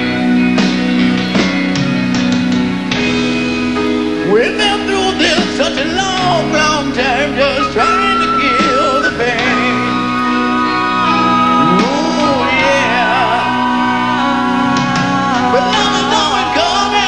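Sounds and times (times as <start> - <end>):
piano and band: 0.0 - 17.0
man singing: 4.2 - 10.4, 11.0 - 17.0.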